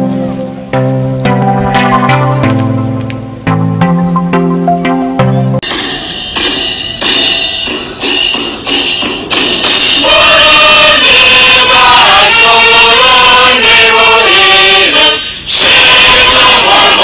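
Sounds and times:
crowd singing an anthem: 9.8 - 17.0.

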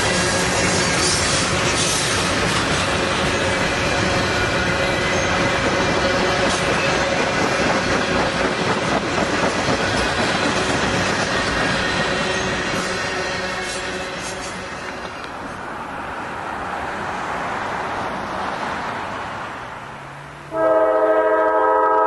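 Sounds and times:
wheels clacking over rail joints: 0.0 - 15.6
train wheels rumbling on rail: 0.0 - 22.0.

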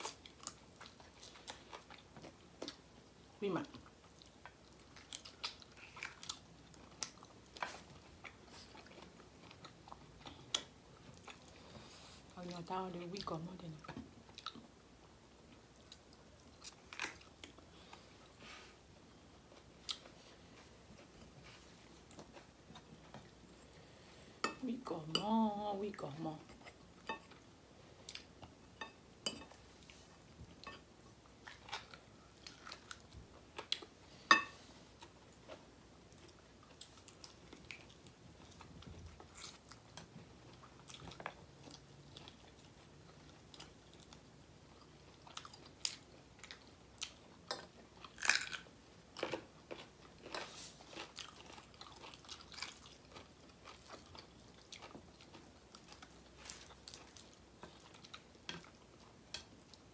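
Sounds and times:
people chewing and biting: 36.2 - 59.9.

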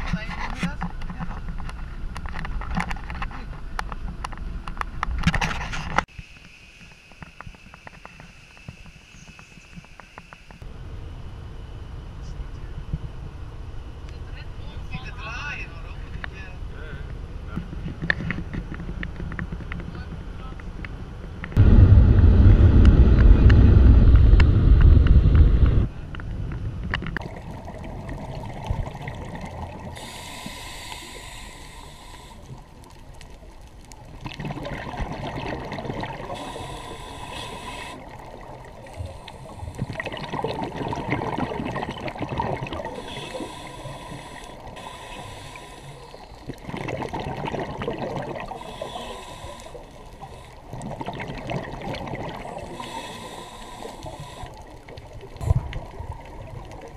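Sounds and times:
car wind and road rumble: 15.8 - 27.6
scuba regulator bubbles gurgling: 27.2 - 56.9.

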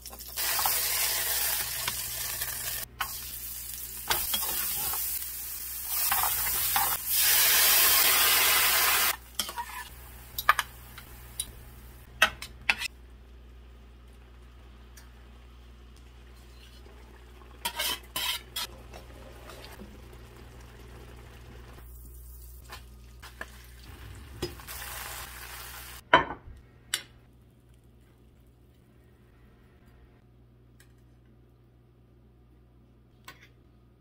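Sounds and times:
butter and shallots sizzling in skillet: 0.1 - 11.4
utensil scraping against pan: 17.6 - 18.7.

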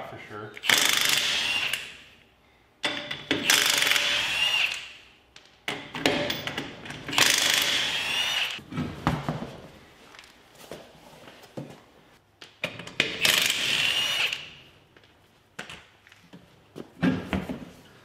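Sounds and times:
impact wrench hammering: 2.8 - 5.0.

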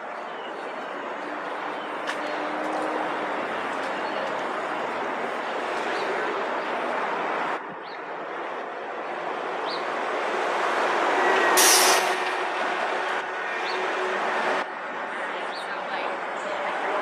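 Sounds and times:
heavy vehicle traffic noise: 0.0 - 17.0
air brake hiss: 11.6 - 12.3.

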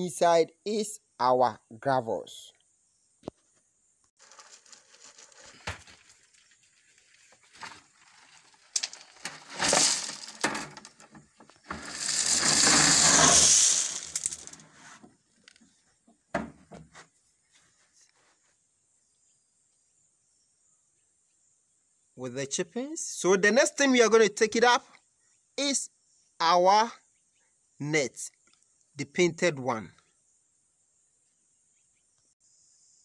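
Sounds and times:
gravel poured onto concrete: 4.2 - 14.8
stones clattering: 4.2 - 14.8.

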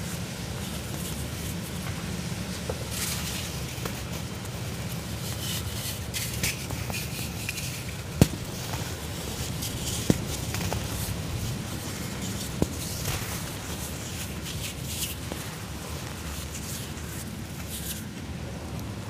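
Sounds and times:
steady low hum: 0.0 - 19.0
hands crumbling dry cement: 2.6 - 18.1
sharp crack: 8.1 - 11.2.

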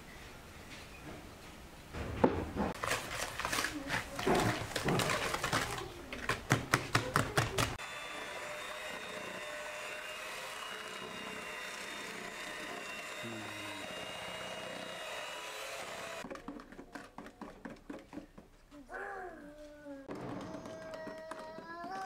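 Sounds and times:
electric hand mixer whine: 7.8 - 16.3.

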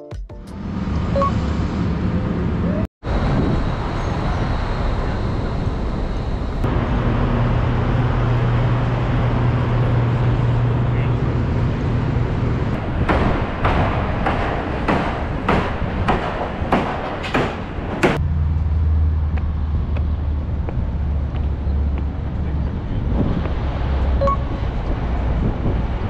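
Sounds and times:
traffic running: 0.4 - 26.0
low engine hum: 0.5 - 13.9, 18.1 - 26.0
indistinct voices: 4.2 - 12.8.

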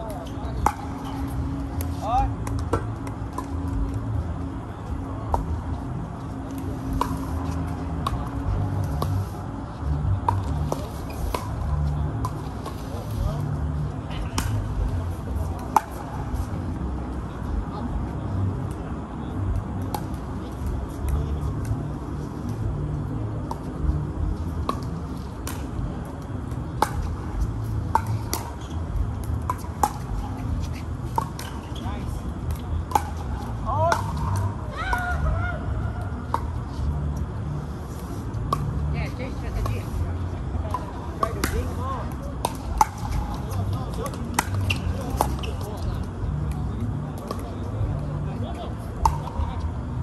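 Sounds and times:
steady low rumble: 0.0 - 45.1
paddles hitting ball: 26.6 - 35.2, 40.7 - 45.6.

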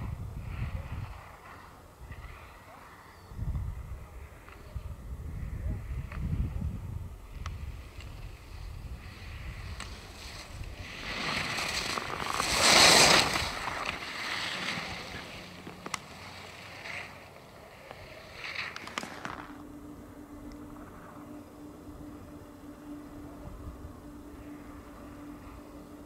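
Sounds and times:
skis scraping on snow: 0.4 - 3.2, 7.2 - 19.7.

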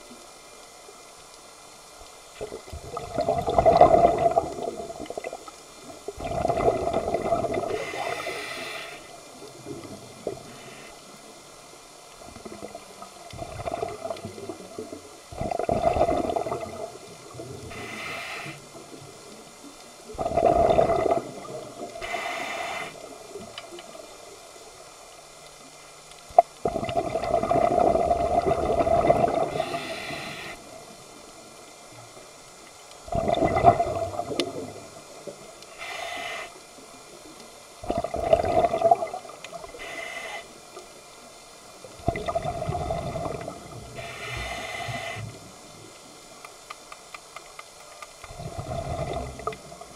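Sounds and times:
exhaled bubbles underwater: 2.4 - 8.4, 12.2 - 17.9, 20.1 - 22.2, 26.4 - 30.8, 33.0 - 35.5, 37.8 - 39.9, 41.8 - 45.5, 48.3 - 49.9
regulator hiss on inhale: 7.5 - 9.5, 10.2 - 12.2, 17.4 - 19.5, 21.8 - 23.5, 29.3 - 31.0, 35.2 - 37.2, 39.5 - 41.2, 43.8 - 46.7.

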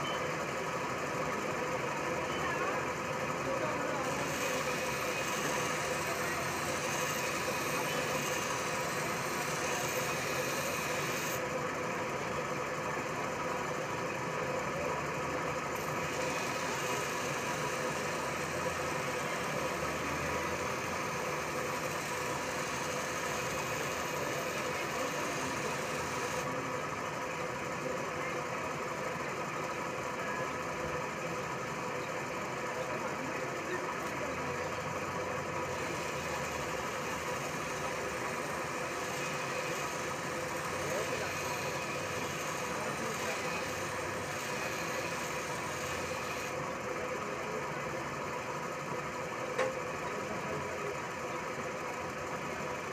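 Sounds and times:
grinding machine hum: 0.0 - 52.9
blade grinding on grinding wheel: 3.4 - 11.6, 15.6 - 26.5, 35.6 - 46.7.

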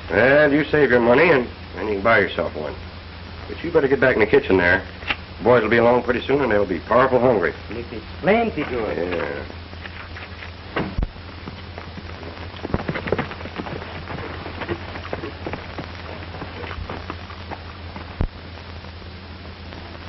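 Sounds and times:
film hiss: 0.0 - 20.0
low hum: 0.0 - 20.0
crackles and pops: 7.6 - 20.0.

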